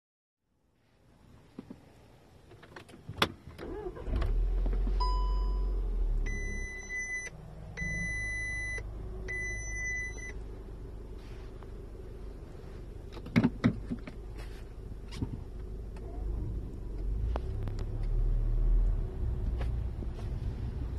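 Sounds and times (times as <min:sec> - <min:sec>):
car engine starting and idling: 0:01.5 - 0:20.9
long warning beeps: 0:05.0 - 0:10.4.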